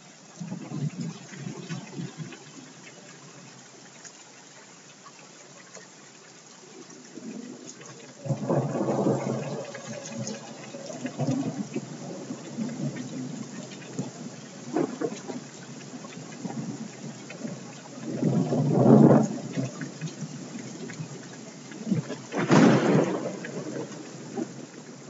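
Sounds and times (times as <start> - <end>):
rain-like electronic hiss: 0.0 - 25.0
scattered crackles: 6.9 - 25.0.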